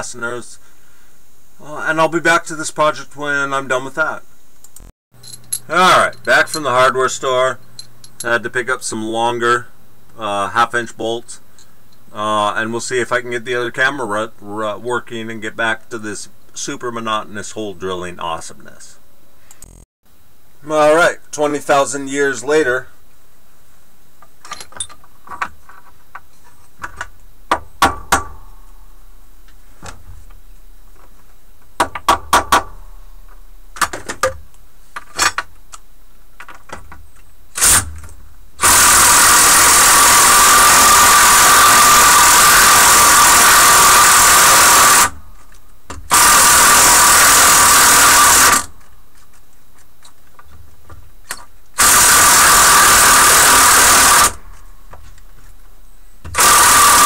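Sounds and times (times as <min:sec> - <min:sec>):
bolts and tools clinking: 0:05.2 - 0:06.8, 0:07.6 - 0:08.3, 0:24.4 - 0:25.8
power drill running: 0:38.6 - 0:45.2, 0:46.1 - 0:48.7, 0:51.8 - 0:54.4, 0:56.4 - 0:57.0.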